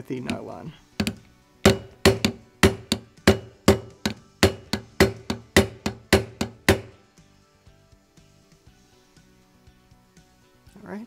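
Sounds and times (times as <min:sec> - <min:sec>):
faint background music: 0:00.0 - 0:11.0
nylon hammer tapping on metal: 0:00.2 - 0:07.0.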